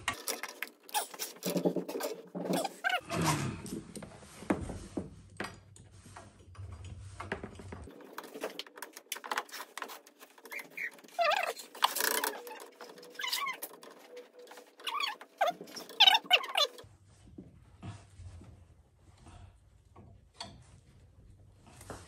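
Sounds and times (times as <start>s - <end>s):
high-pitched squeals: 10.5s - 16.8s.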